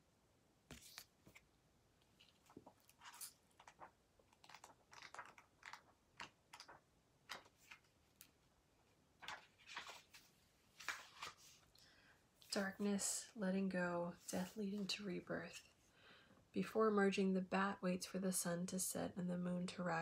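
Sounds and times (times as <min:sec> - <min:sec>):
hands handling paper: 0:00.7 - 0:08.4, 0:09.2 - 0:11.7.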